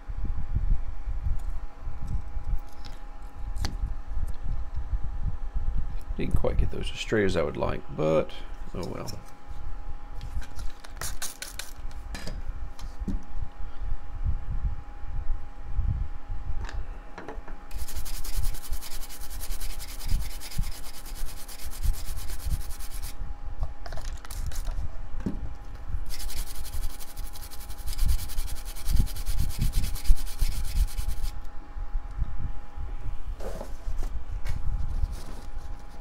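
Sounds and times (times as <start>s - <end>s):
toothbrush scrubbing circuit board: 17.7s - 23.1s, 26.1s - 31.3s.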